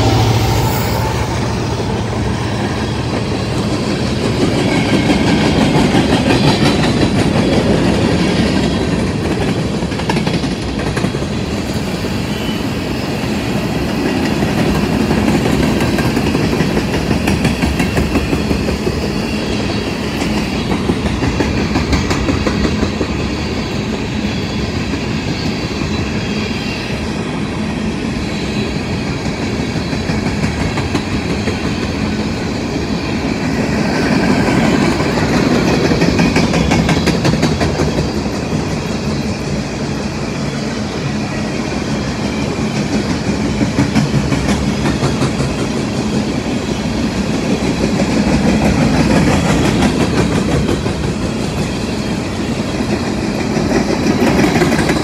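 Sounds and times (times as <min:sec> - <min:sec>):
train wheels rumbling on rail: 0:00.0 - 0:55.0
wheels clicking over rail joints: 0:34.3 - 0:38.8, 0:52.8 - 0:55.0.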